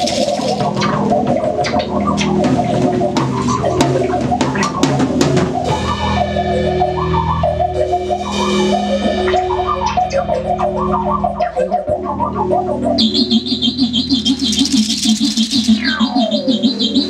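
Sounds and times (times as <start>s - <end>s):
drum kit playing fast: 0.0s - 1.4s, 2.4s - 5.9s, 13.8s - 16.2s.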